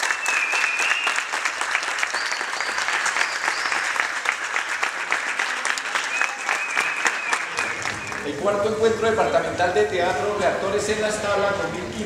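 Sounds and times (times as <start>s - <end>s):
audience clapping: 0.0s - 8.7s.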